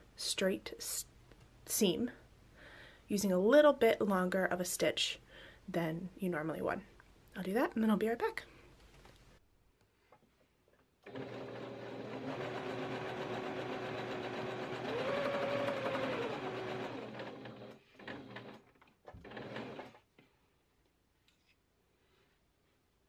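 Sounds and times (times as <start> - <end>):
sewing machine running: 11.0 - 20.0.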